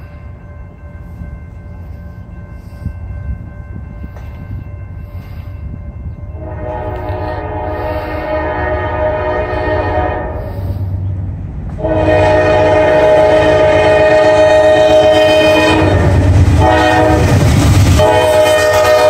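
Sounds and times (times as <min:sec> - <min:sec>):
locomotive engine rumble: 0:00.0 - 0:19.0
locomotive air horn blasts: 0:06.3 - 0:10.8, 0:11.8 - 0:19.0.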